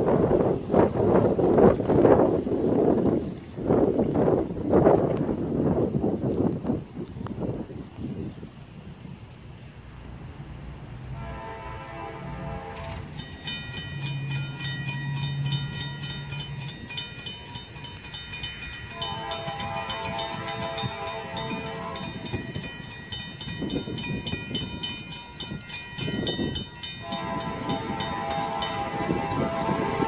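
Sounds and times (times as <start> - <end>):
locomotive horn: 11.1 - 16.8, 18.7 - 22.7, 26.8 - 30.0
crossing warning bell ringing: 12.0 - 30.0.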